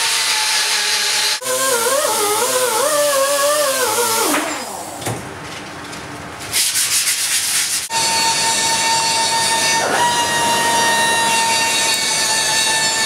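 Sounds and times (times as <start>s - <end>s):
rotary grinder whining: 7.9s - 13.0s.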